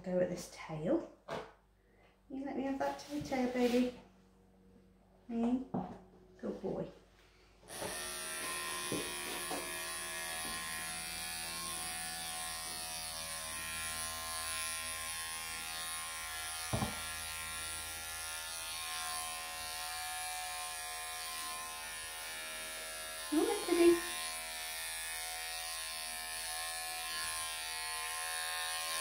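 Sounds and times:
electric clippers buzzing: 7.7 - 29.0.

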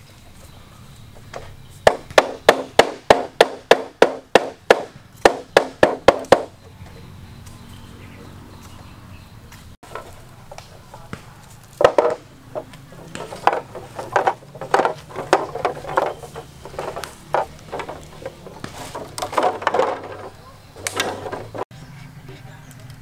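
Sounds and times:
bamboo poles knocking together: 1.1 - 7.0, 9.8 - 21.7.

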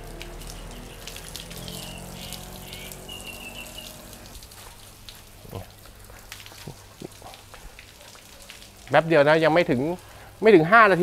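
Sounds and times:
hose spraying water on boat hull: 0.0 - 5.1
water dripping: 0.0 - 11.0.

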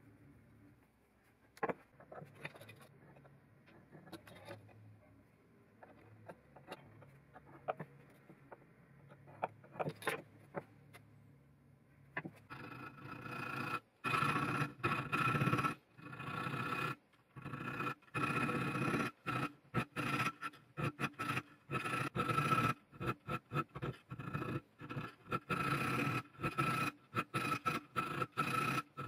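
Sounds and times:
file scraping metal blade: 17.5 - 29.0.

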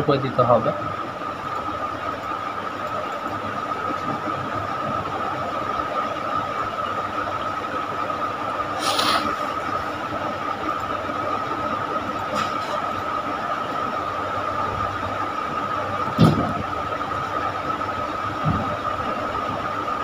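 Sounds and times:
burst of hiss: 8.8 - 9.4.

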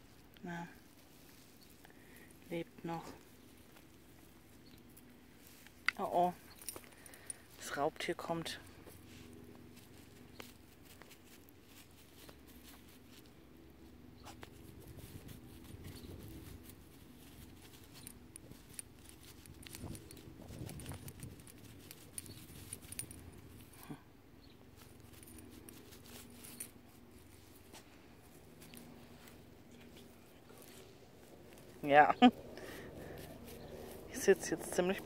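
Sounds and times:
dry grass rustling: 0.0 - 35.0
harness tag jingling: 1.5 - 13.2, 14.8 - 23.9, 24.8 - 35.0.

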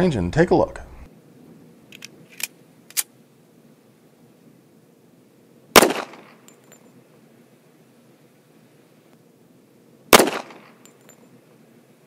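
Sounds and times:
pistol shot: 5.8 - 6.4, 10.1 - 10.8.

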